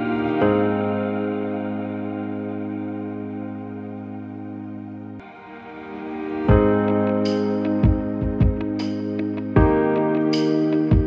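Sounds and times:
held chords: 0.0 - 11.0
low drum beat: 6.5 - 6.9, 7.8 - 8.8, 9.6 - 9.9.

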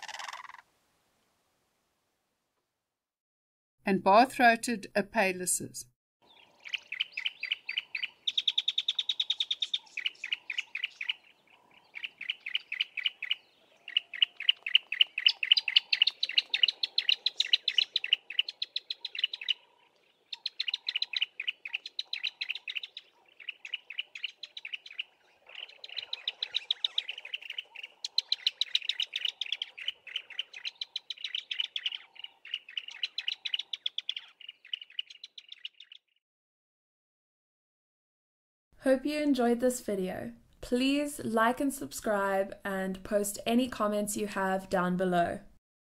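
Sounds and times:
birds singing a duet: 6.2 - 36.2.

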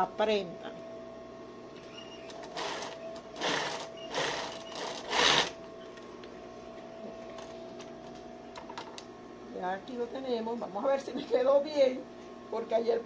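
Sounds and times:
steady hum: 0.0 - 13.0
sewing machine stitching: 2.3 - 5.6.

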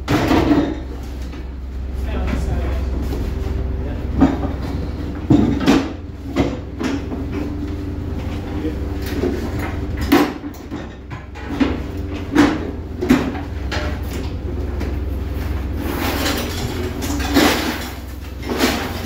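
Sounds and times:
boat engine humming: 0.8 - 19.0
hollow knocks and clunks: 4.1 - 7.8.

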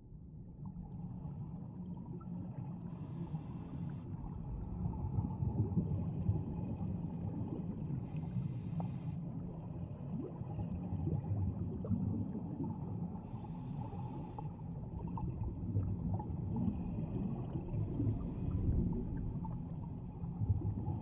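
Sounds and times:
diver breathing through regulator: 2.9 - 4.1, 8.1 - 9.2, 13.2 - 14.6.

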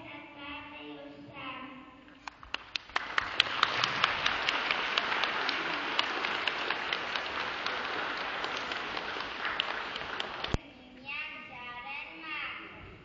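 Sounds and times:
sharp close claps: 2.2 - 10.6
audience applauding: 2.3 - 10.6.

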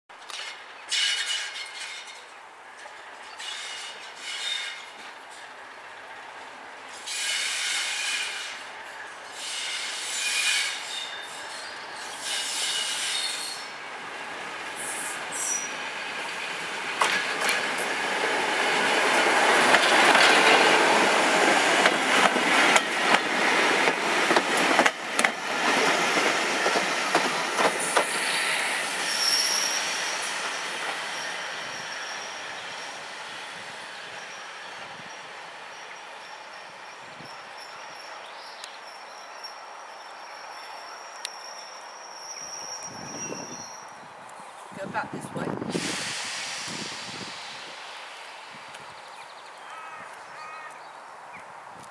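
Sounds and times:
train wheels clattering over rail joints: 0.2 - 5.6, 16.8 - 28.8
train wheels squealing: 0.9 - 2.3, 3.2 - 6.3, 6.9 - 13.8, 14.6 - 16.3, 25.1 - 44.1.

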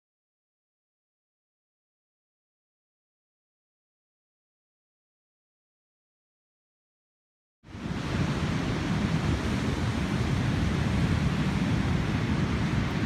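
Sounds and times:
ocean surf breaking: 7.7 - 13.0
wind on microphone: 7.7 - 13.0.

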